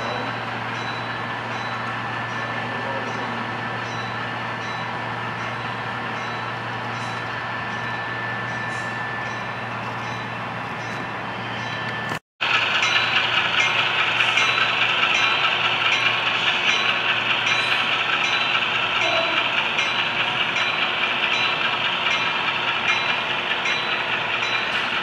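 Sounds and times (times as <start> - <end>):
wheels clicking on track: 11.7 - 25.0.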